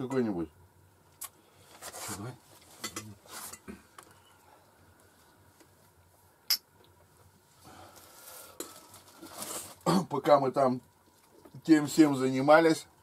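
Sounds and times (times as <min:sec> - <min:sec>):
faint rustling of people eating: 0:00.8 - 0:13.0
tableware clink: 0:02.8 - 0:03.7.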